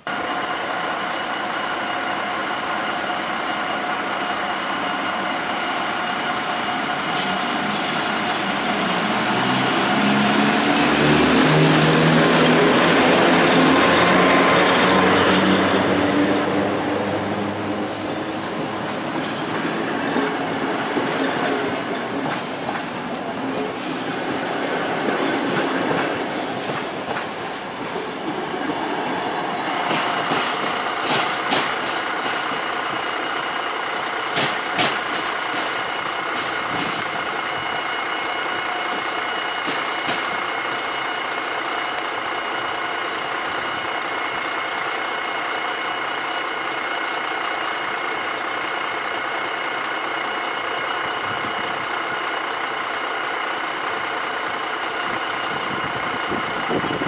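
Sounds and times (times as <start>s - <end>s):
electric train humming: 0.0s - 57.0s
train coaches clattering over rail joints: 6.9s - 16.1s, 18.1s - 41.2s.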